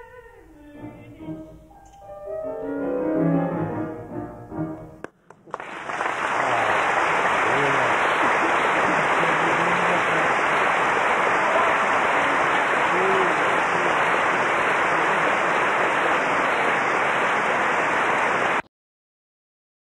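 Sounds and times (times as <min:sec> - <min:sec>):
audience applauding: 0:05.0 - 0:18.7
voices calling out: 0:06.4 - 0:18.6.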